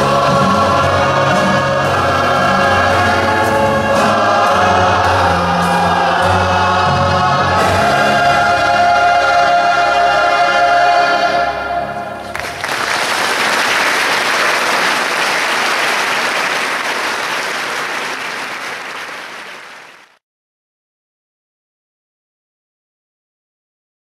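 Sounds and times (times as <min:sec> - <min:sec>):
gospel choir holding chord: 0:00.0 - 0:12.6
audience applause: 0:12.2 - 0:20.2.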